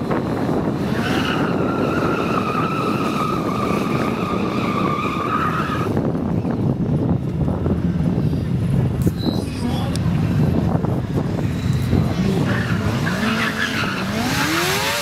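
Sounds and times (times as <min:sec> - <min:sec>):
motorcycle tyre squealing on asphalt: 0:00.7 - 0:06.5, 0:11.4 - 0:15.0.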